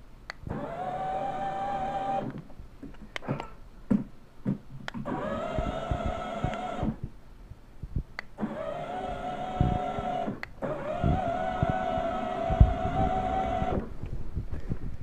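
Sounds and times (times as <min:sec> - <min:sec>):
toy car electric motors whining: 0:00.5 - 0:02.4, 0:05.1 - 0:07.0, 0:08.4 - 0:13.9.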